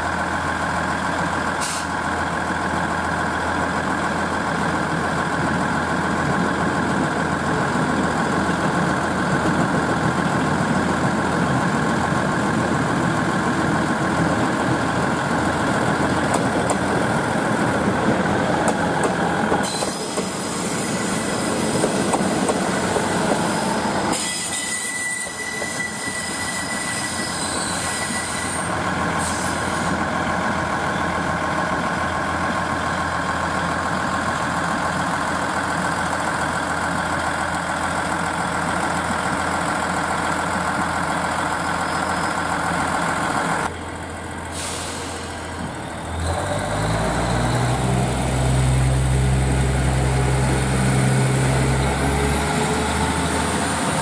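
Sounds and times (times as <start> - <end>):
train wheels rolling over rails: 3.2 - 43.7
diesel engines running: 28.6 - 54.0.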